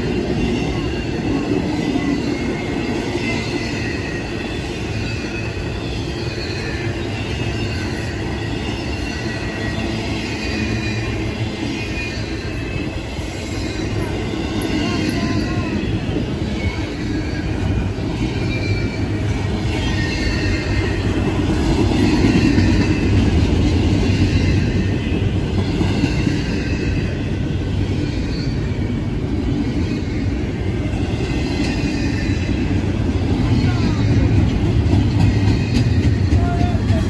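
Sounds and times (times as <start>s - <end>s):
train wheels rumbling on rail: 0.0s - 37.0s
faint high wheel squeals: 0.6s - 21.2s.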